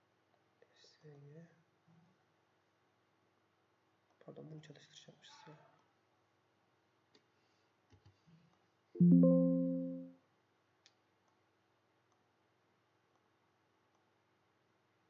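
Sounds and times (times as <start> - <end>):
computer alert chime: 9.0 - 10.1.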